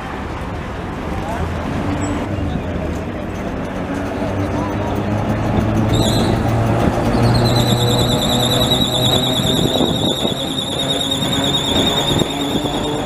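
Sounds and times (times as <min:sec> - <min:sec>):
tram rumbling: 0:00.0 - 0:13.0
tram wheels squealing on rails: 0:04.8 - 0:13.0.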